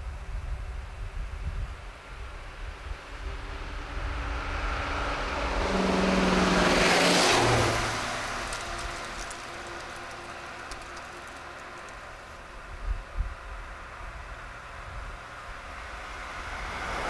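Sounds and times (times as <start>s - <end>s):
road vehicle passing by: 2.9s - 12.6s, 13.7s - 17.0s.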